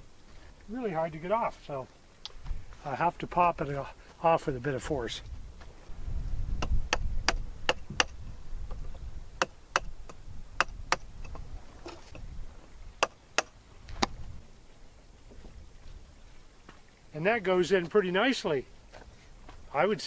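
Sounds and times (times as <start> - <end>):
sharp plastic knocks: 6.6 - 8.2.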